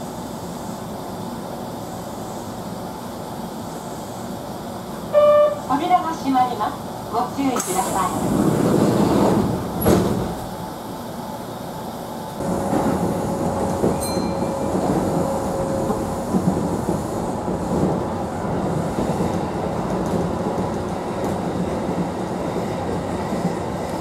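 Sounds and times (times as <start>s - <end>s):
train rumbling: 0.0s - 24.0s
sliding doors thump: 8.2s - 10.5s.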